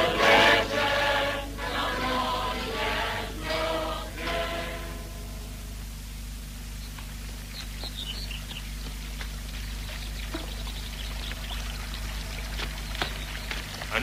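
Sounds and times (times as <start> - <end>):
film soundtrack hiss and hum: 0.0 - 14.0
faint high chirps: 6.7 - 13.7
water running and trickling: 9.3 - 14.0.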